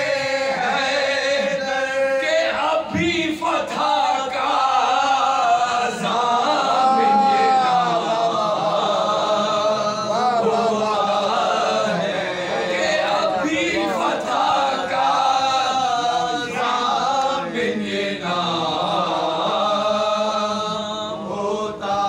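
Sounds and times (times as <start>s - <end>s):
men chanting: 0.0s - 22.0s.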